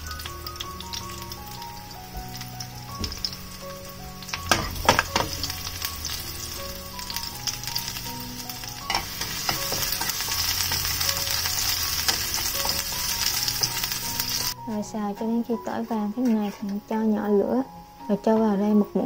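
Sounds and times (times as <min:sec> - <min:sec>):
garlic sizzling in oil: 0:00.0 - 0:14.9.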